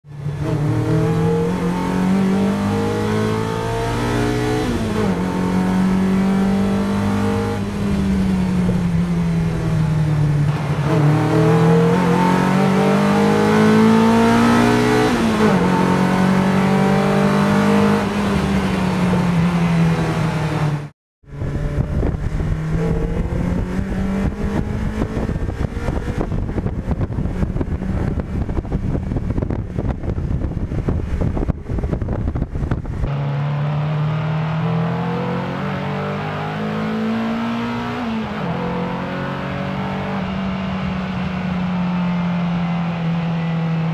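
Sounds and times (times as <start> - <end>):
car engine accelerating: 0.1 - 43.9
wind buffeting on microphone: 21.4 - 33.1.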